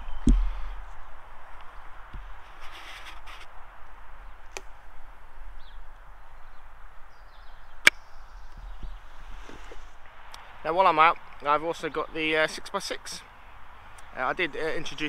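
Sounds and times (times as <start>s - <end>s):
steady background hiss: 0.0s - 15.0s
hands rustling: 9.2s - 10.0s.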